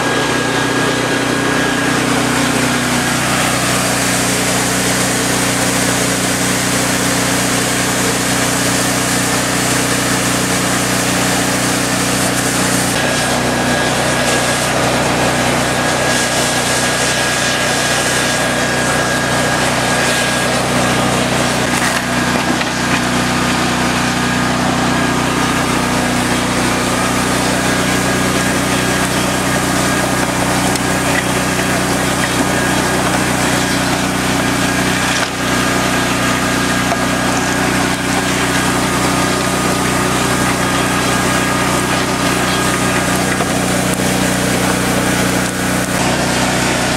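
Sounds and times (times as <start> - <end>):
small engine running: 0.0 - 46.9.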